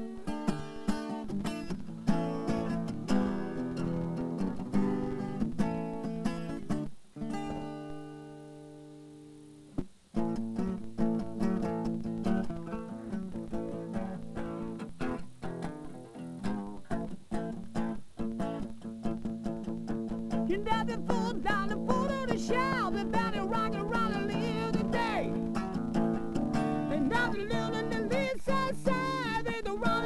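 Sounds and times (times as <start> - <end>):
acoustic guitar playing: 0.0 - 30.0.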